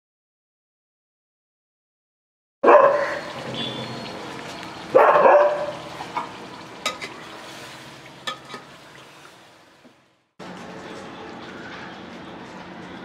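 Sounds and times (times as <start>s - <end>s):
dog barking loudly: 2.6s - 3.4s, 4.9s - 5.9s
curry sizzling: 3.0s - 10.8s
metal ladle clinking on pot: 8.2s - 8.7s.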